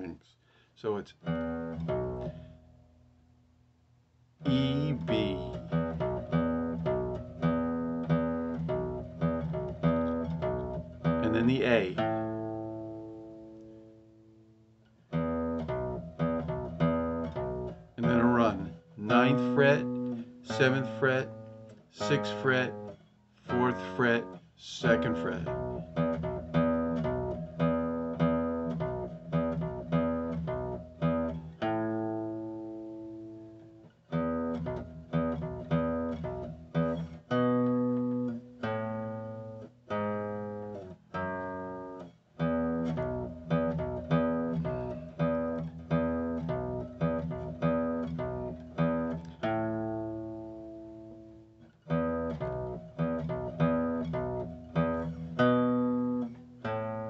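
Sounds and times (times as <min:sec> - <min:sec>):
bass guitar plucking: 0:01.2 - 0:03.0, 0:04.4 - 0:14.4, 0:15.0 - 0:57.0.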